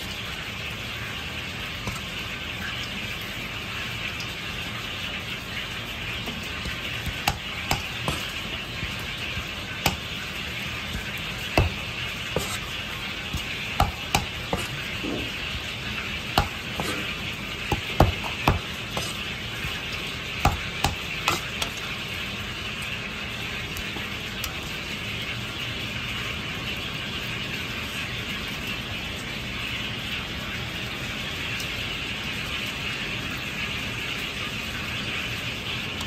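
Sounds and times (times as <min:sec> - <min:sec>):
knife tapping on plastic cutting board: 0:06.7 - 0:08.3, 0:09.4 - 0:10.1, 0:10.9 - 0:12.6, 0:13.3 - 0:15.3, 0:16.4 - 0:17.0, 0:17.7 - 0:19.2.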